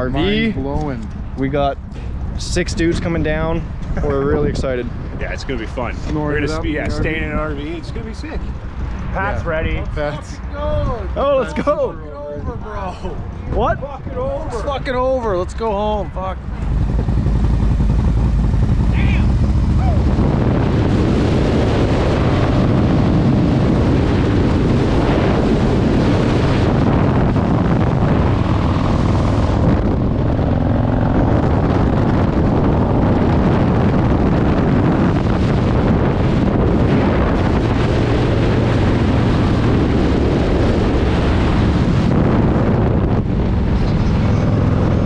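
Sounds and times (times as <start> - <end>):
wind rushing over microphone: 0.0 - 45.0
motorcycle engines running: 16.0 - 45.0.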